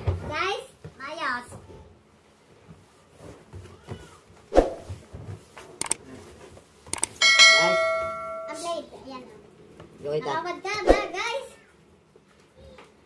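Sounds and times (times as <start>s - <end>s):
mouse clicks: 7.0s - 7.2s
bell-like notification chime: 7.2s - 8.7s.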